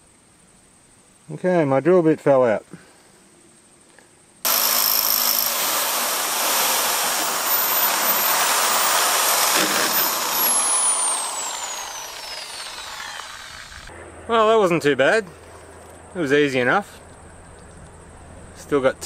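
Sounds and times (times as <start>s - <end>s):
electric drill cutting metal: 4.5s - 13.9s.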